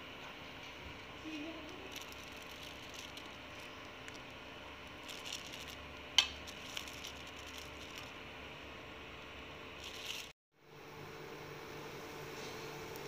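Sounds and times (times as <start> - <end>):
plastic bag handling: 1.3 - 8.2, 9.8 - 10.4.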